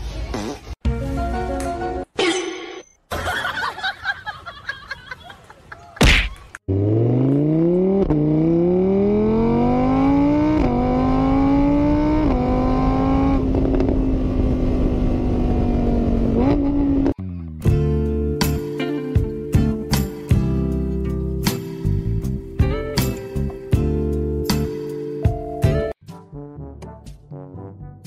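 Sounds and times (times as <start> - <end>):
vehicle engine accelerating: 6.7 - 17.2.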